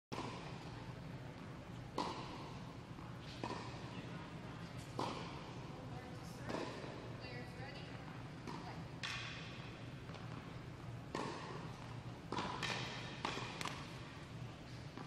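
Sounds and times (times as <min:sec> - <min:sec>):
steady low hum: 0:00.1 - 0:15.0
tennis ball pops with echo: 0:01.9 - 0:03.9, 0:04.8 - 0:05.6, 0:06.2 - 0:07.0, 0:08.4 - 0:10.5, 0:11.1 - 0:14.1.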